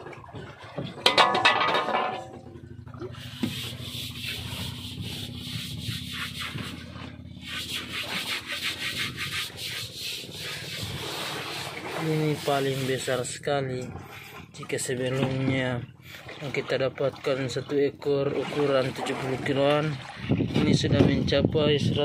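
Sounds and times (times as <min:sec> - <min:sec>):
low hum: 0:00.0 - 0:12.0
rubbing and scraping strokes: 0:03.2 - 0:14.5.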